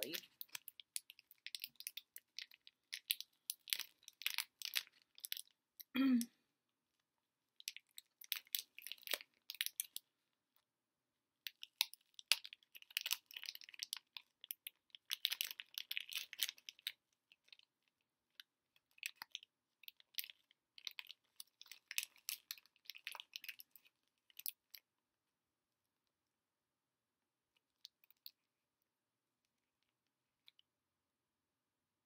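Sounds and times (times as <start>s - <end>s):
wrapper crinkling: 0.0s - 5.5s, 7.7s - 10.0s, 11.5s - 17.6s, 19.0s - 24.7s.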